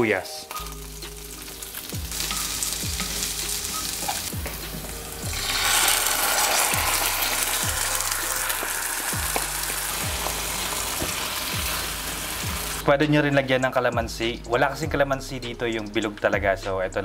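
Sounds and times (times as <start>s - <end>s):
onion sizzling in butter: 0.4s - 12.8s
sauce poured into pan: 5.2s - 12.4s.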